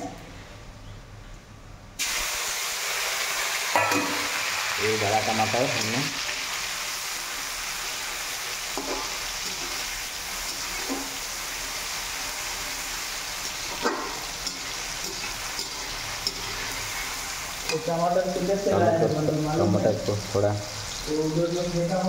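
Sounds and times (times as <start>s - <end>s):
tomato sizzling in hot oil: 2.0s - 22.0s
stirring scrapes in pan: 8.7s - 17.8s.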